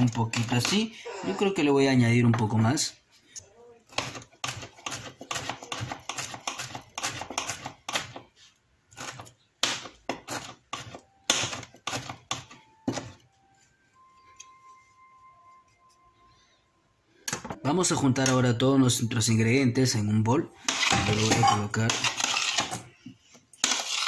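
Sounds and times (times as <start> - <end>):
knife rapidly chopping herbs: 3.9 - 8.2.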